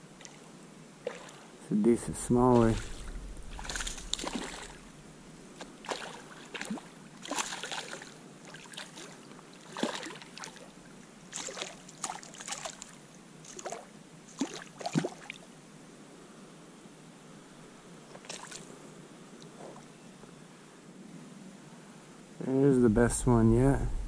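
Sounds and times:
faint moving water: 0.0 - 24.0
fish splashing at surface: 2.6 - 4.9, 5.8 - 10.6.

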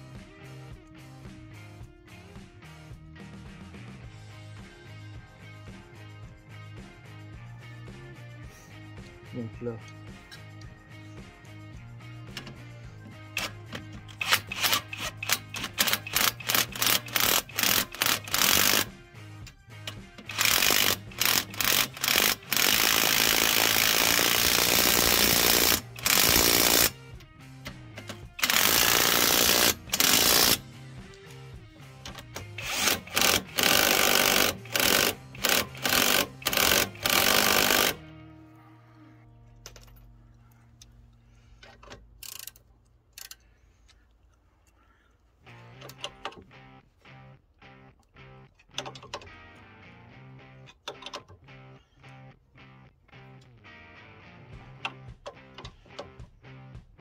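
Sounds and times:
impact wrench hammering: 12.3 - 18.9, 19.9 - 27.0, 27.6 - 30.6, 32.0 - 38.0.

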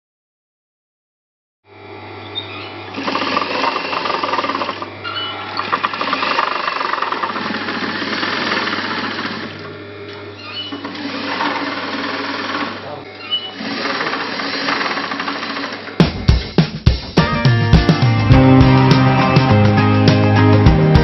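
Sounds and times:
sewing machine motor hum: 1.7 - 16.6
sewing machine stitching clatter: 2.9 - 4.9, 5.5 - 9.7, 10.7 - 12.9, 13.5 - 15.9.

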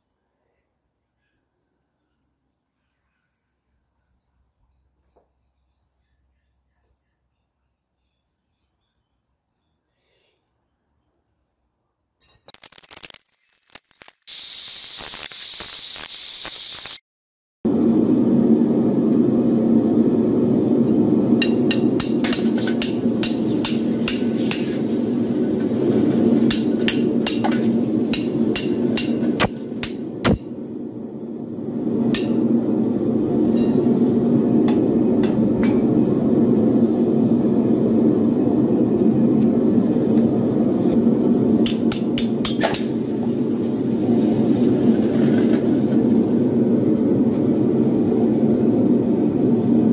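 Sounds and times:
loud hiss: 13.8 - 17.0, 21.8 - 30.6
furnace burner rushing: 17.7 - 49.9.

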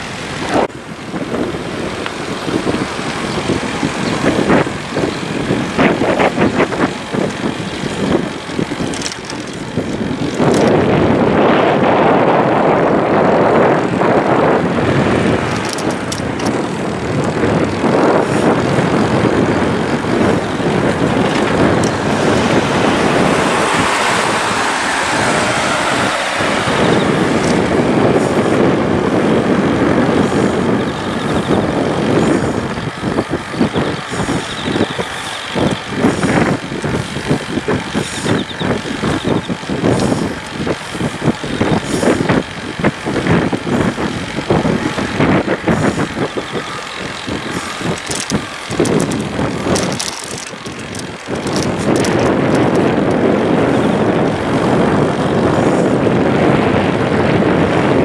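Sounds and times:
wind buffeting microphone: 0.0 - 58.0
irregular knocks and rattles: 47.5 - 52.8.

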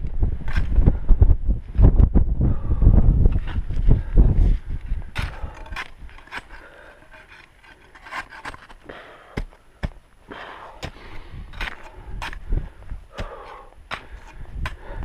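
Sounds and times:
hard breathing: 2.4 - 15.0
crampons and ice axe crunching ice: 3.4 - 15.0.

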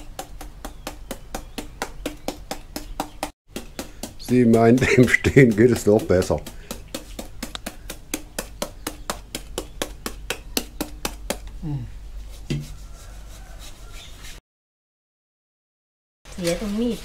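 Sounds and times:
knife chopping into papaya: 0.0 - 11.5, 12.4 - 12.8.

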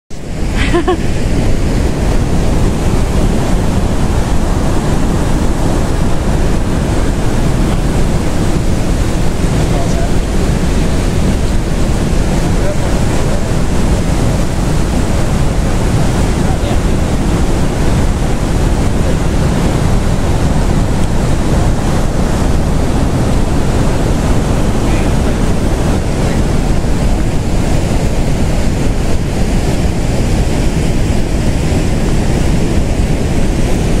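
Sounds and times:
waterfall rushing loudly: 0.1 - 34.0.

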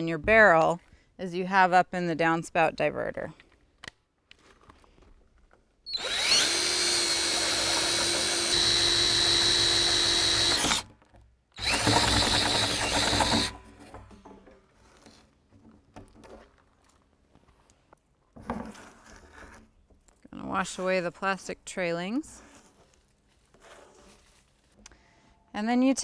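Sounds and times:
cordless drill boring plastic: 5.9 - 10.9, 11.6 - 13.6.

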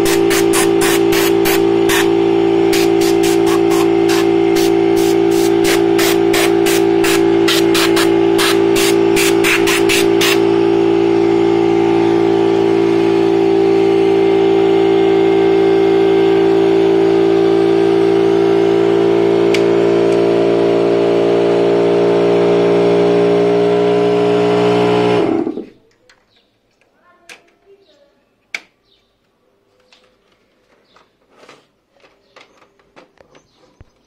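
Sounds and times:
air hissing: 0.0 - 10.5
air compressor running: 0.0 - 25.8.

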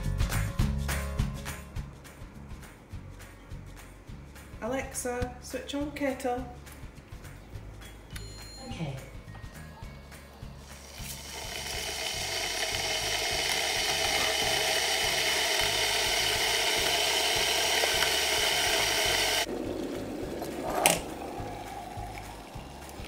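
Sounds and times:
electric kettle hissing: 10.4 - 23.0.

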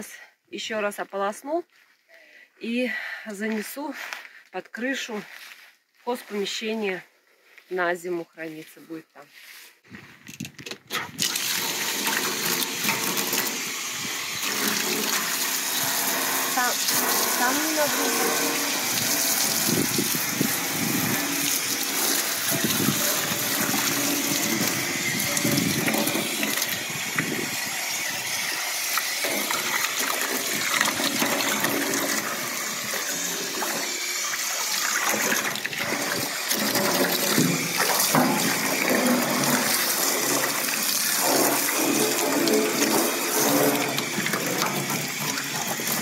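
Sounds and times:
hose water splashing into bathtub: 10.9 - 46.0.

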